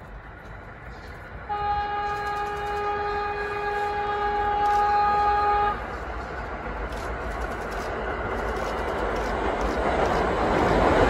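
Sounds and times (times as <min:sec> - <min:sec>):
train rumbling on rails: 0:00.0 - 0:11.0
train horn blast: 0:01.4 - 0:06.0.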